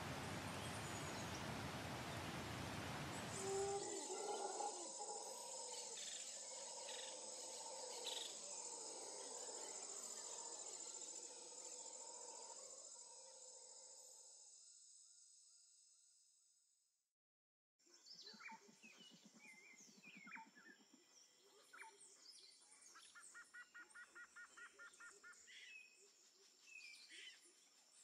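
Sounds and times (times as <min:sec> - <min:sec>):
even hiss: 0:00.0 - 0:06.2
lower insect calls: 0:00.0 - 0:16.4
insects trilling: 0:02.7 - 0:15.9.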